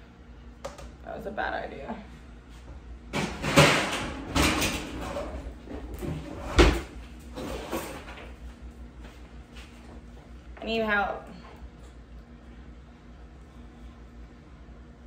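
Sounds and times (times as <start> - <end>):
oven door knocks and bangs: 3.1 - 5.4.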